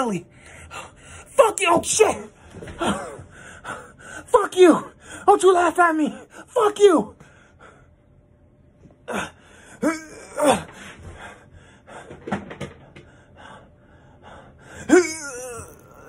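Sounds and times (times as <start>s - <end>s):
man gasping and groaning: 9.1s - 12.3s, 14.5s - 16.0s.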